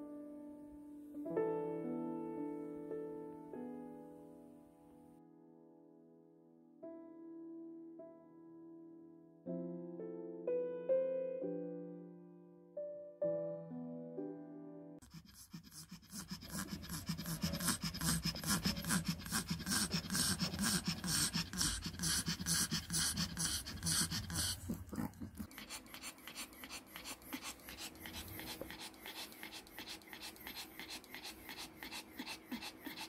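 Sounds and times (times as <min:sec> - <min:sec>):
piano tune: 0:00.0 - 0:15.0
dog panting hoarsely: 0:15.0 - 0:33.0.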